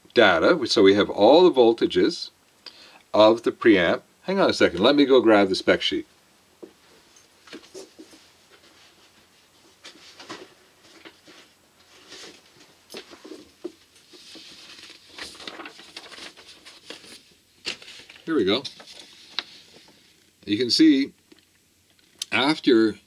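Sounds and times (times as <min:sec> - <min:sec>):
knocks and shuffles: 0:06.6 - 0:20.1
papers rustling: 0:07.4 - 0:20.3.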